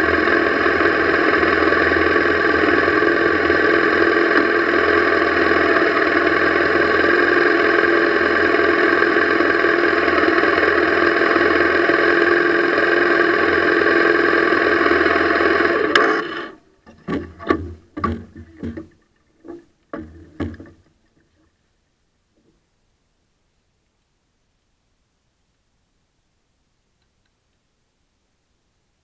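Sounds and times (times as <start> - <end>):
motorcycle engine idling: 0.0 - 16.2
engine switch click: 15.9 - 16.5
faint knocks: 16.8 - 21.3.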